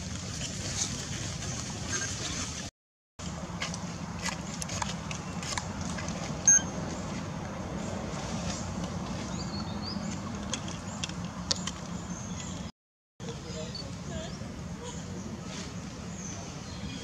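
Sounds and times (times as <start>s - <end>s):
short sharp high chirp: 6.5s - 6.7s.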